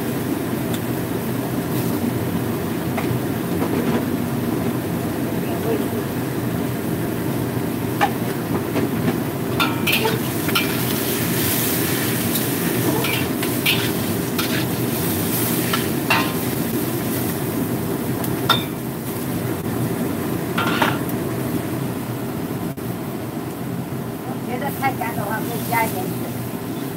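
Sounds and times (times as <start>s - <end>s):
food sizzling: 0.0s - 22.0s, 24.6s - 26.9s
metal spatula scraping wok: 9.6s - 16.6s.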